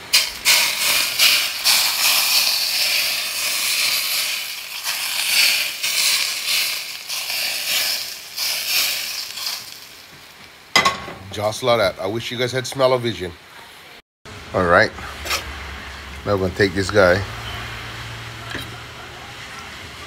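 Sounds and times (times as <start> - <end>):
hot oil sizzling and crackling: 0.0 - 12.0.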